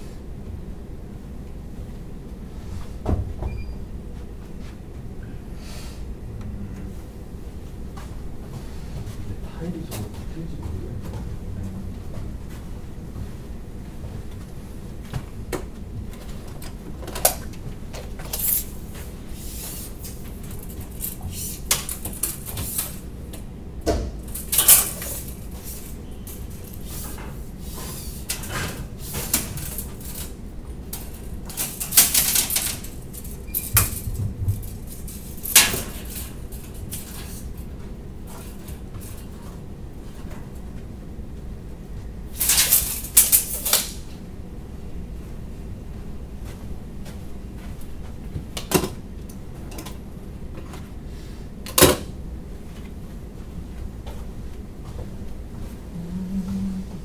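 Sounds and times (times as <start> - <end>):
low room hum: 0.0 - 57.0
metal parts and tools clinking: 24.3 - 27.0, 31.0 - 37.4.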